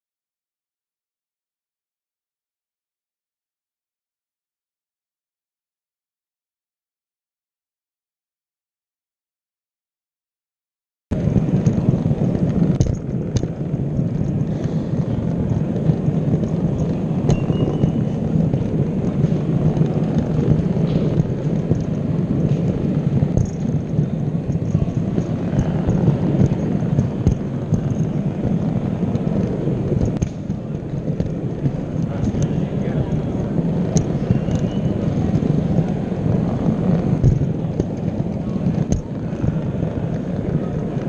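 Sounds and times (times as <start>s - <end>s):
model train wheels and motor rumbling: 11.2s - 41.0s.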